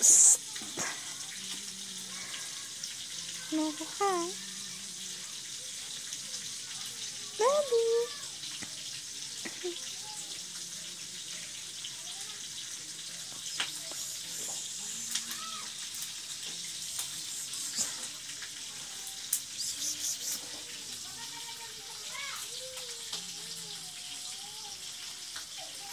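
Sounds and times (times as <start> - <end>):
steady rushing hiss: 0.0 - 1.2, 13.4 - 21.4
faint distant voices: 0.0 - 25.9.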